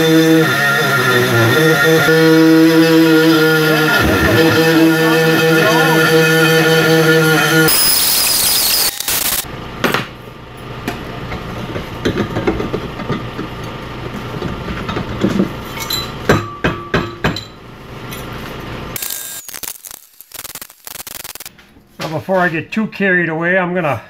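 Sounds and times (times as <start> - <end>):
metal clinks and knocks: 14.9 - 18.7
sharp ringing metal clanks: 15.7 - 18.4.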